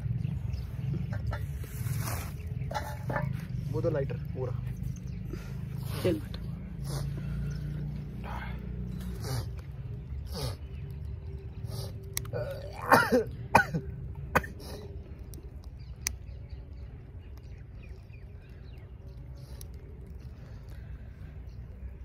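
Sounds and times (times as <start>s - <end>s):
person coughing: 12.4s - 14.8s.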